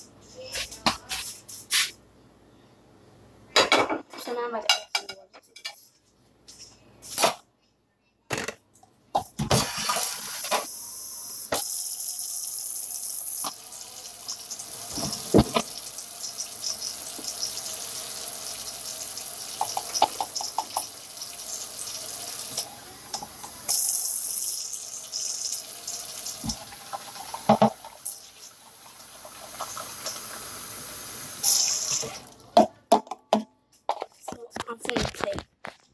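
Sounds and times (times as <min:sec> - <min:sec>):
kitchen tap running: 0:09.5 - 0:32.6
water poured into pot: 0:24.6 - 0:32.4.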